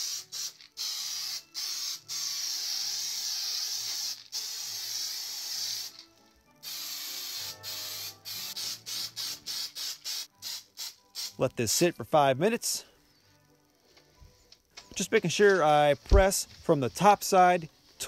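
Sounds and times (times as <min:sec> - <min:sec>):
aerosol spray can hissing: 0:00.0 - 0:11.5.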